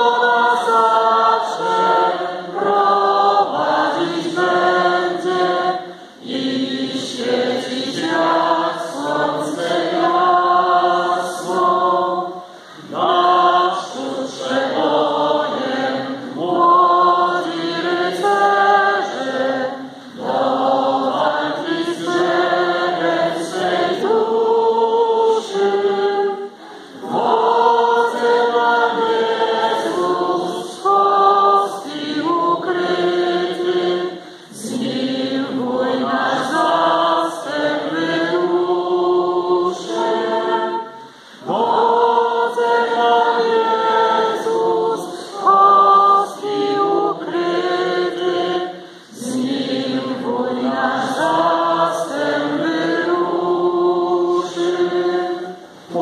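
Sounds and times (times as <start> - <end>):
congregation singing a hymn: 0.0 - 56.0.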